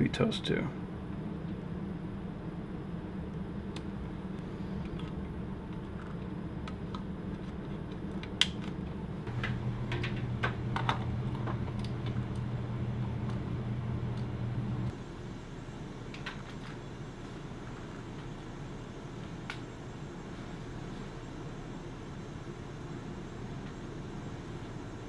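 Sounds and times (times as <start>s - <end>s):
steady low hum: 0.0s - 25.0s
deeper hum: 8.8s - 25.0s.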